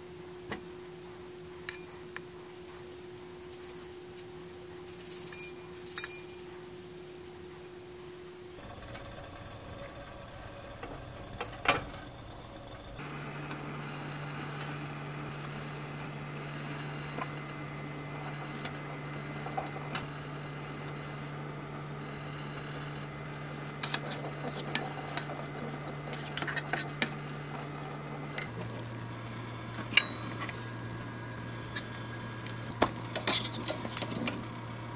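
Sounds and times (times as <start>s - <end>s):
metal spoon clinking pot: 30.0s - 30.2s.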